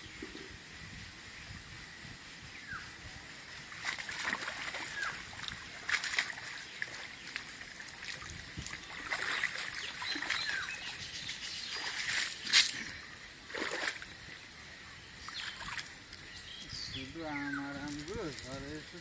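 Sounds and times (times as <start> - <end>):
water sloshing and splashing: 3.6 - 14.4, 15.2 - 16.3.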